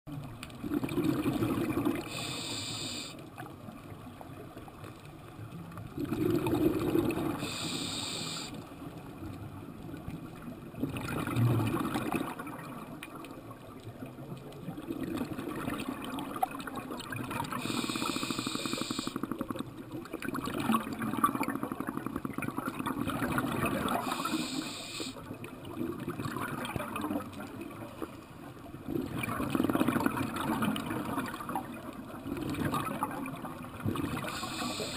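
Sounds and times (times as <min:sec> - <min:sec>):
hissing regulator inhales: 0:02.0 - 0:03.2, 0:07.3 - 0:08.6, 0:17.5 - 0:19.2, 0:24.0 - 0:25.2, 0:34.2 - 0:34.9
bubbly exhales: 0:06.0 - 0:08.5.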